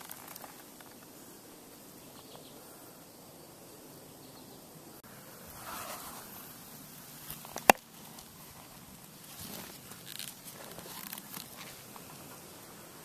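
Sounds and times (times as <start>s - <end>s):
leather rustling: 7.2s - 12.1s.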